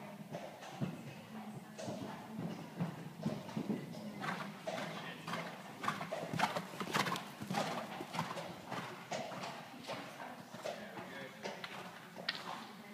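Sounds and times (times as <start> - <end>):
horse hoofbeats on sand: 0.2 - 12.8.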